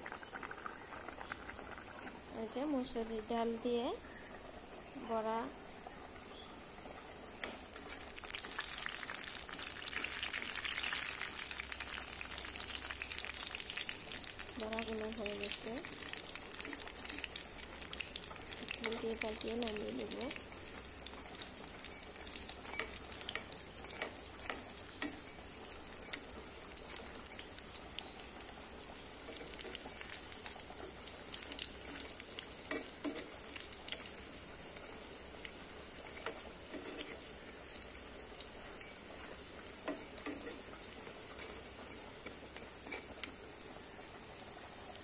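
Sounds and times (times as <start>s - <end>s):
fritters sizzling in hot oil: 0.0s - 45.0s
metal spatula scraping a pan: 36.1s - 37.2s.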